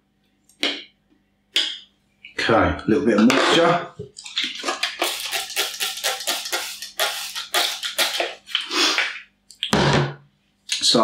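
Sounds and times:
spray bottle hissing squirts: 4.6s - 9.2s.

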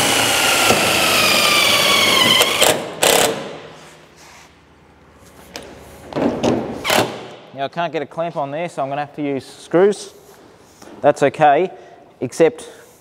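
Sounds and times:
cordless drill whining: 0.0s - 3.3s.

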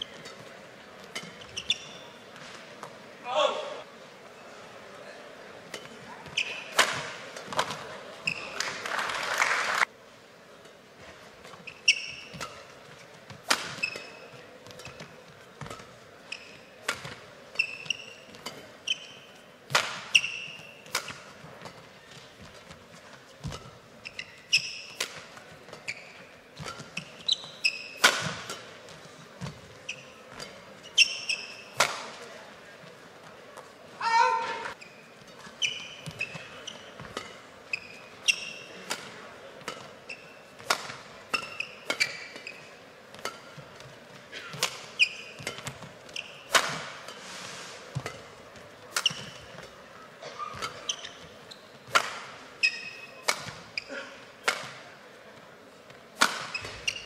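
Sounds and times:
court shoes squeaking: 0.0s - 3.2s, 4.2s - 8.8s, 10.5s - 57.0s
racket hitting shuttlecock: 5.7s - 8.5s, 11.5s - 22.8s, 23.4s - 32.2s, 35.6s - 47.2s, 47.8s - 55.0s, 56.2s - 57.0s.

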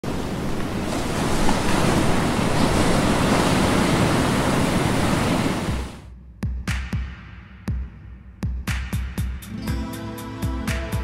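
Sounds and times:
waves and surf rushing: 0.0s - 6.1s.

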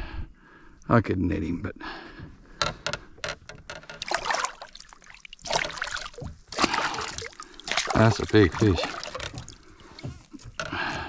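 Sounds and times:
fish splashing at water surface: 4.0s - 10.5s.

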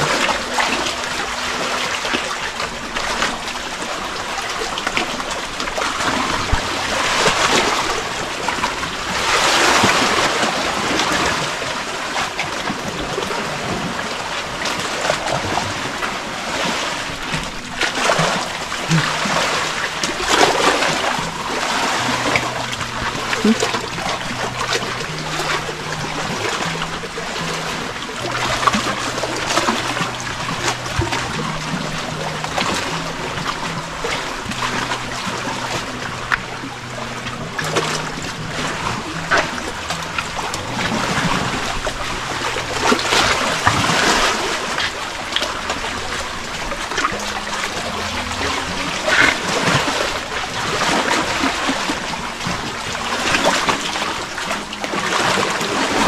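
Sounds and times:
water lapping against rock: 0.0s - 56.0s.

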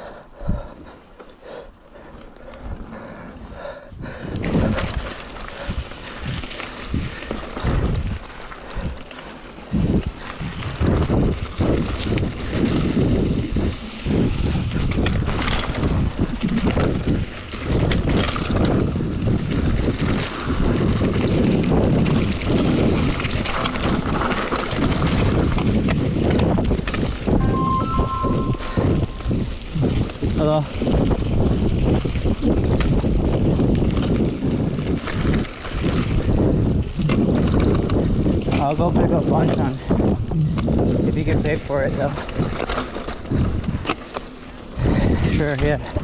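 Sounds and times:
bike tyre noise: 0.0s - 46.0s
bike rattling over bumps: 0.3s - 27.4s, 28.8s - 46.0s
wind rushing over microphone: 2.6s - 9.0s, 9.6s - 46.0s
brief high tone: 27.4s - 29.5s.

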